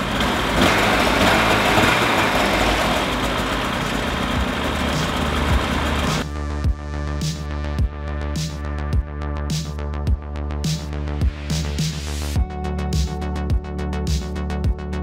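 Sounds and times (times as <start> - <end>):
snowmobile engine running: 0.0 - 6.6
music: 4.4 - 15.0.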